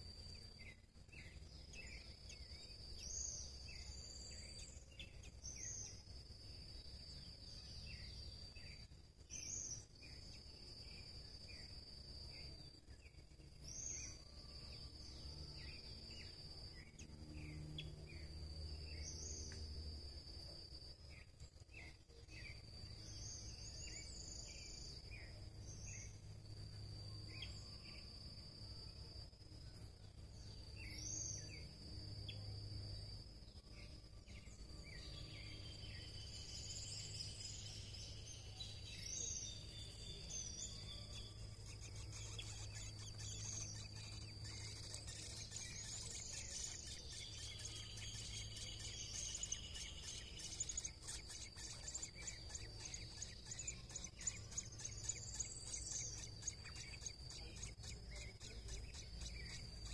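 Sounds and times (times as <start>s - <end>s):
high insect buzz: 0.0s - 59.9s
high bird chirps: 35.0s - 59.9s.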